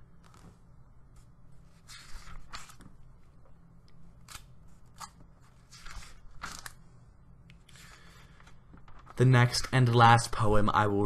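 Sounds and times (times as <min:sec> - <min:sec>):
low steady hum: 0:00.0 - 0:11.0
book pages turning: 0:00.2 - 0:00.6, 0:01.2 - 0:03.1, 0:04.2 - 0:06.8, 0:07.7 - 0:09.2.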